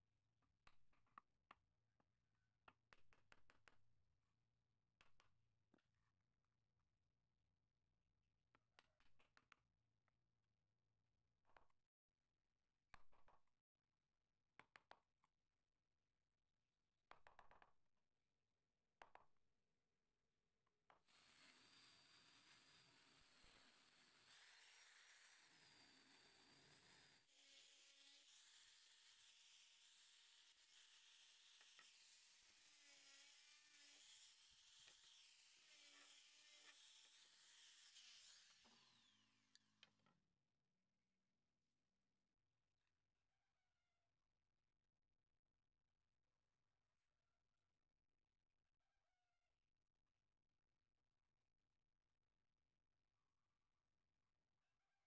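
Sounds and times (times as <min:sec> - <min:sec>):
angle grinder hissing and whining: 0:21.1 - 0:39.2.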